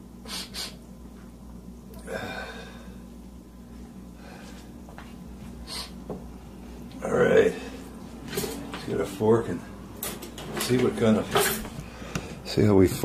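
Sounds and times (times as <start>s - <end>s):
steady low hum: 0.0s - 13.0s
man breathing: 0.2s - 0.8s, 2.0s - 3.2s, 4.1s - 6.0s, 11.7s - 12.5s
short sniffs: 0.2s - 0.8s, 5.6s - 6.0s.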